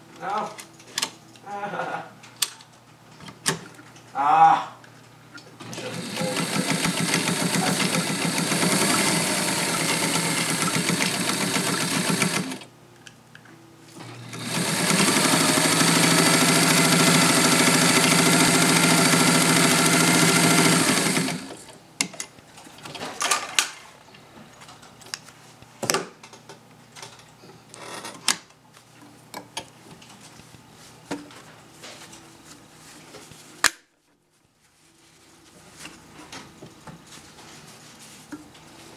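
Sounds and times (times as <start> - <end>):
sewing machine stitching: 5.6 - 12.7, 14.0 - 21.8.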